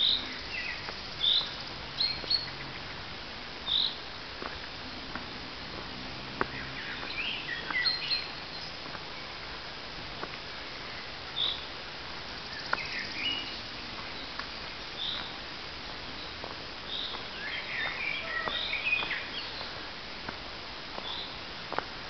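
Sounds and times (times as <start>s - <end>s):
steady hiss: 0.0s - 22.0s
birds chirping: 6.4s - 9.5s, 12.3s - 15.4s, 16.1s - 19.9s.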